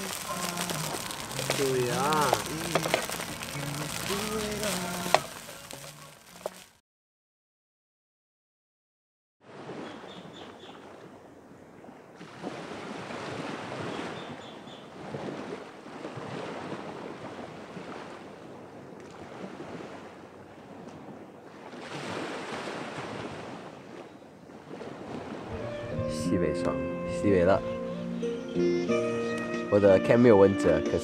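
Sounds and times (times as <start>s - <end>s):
small waves washing on beach: 0.0s - 6.8s, 9.4s - 25.6s.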